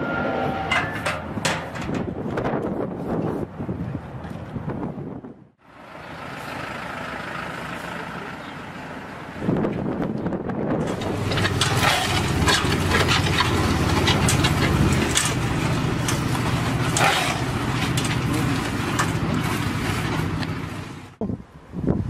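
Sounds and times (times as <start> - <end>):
diesel engine running: 5.6 - 21.2
shovels scraping asphalt: 10.9 - 21.1.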